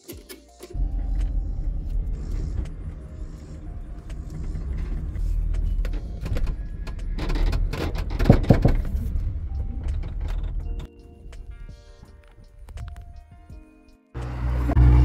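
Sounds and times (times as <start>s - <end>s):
light clicks and rattles: 0.1s - 11.0s
truck engine and road drone: 0.8s - 10.9s, 14.2s - 15.0s.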